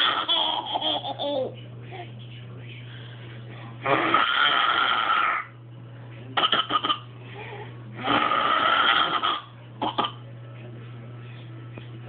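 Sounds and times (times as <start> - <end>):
toddler grunting: 6.4 - 10.2.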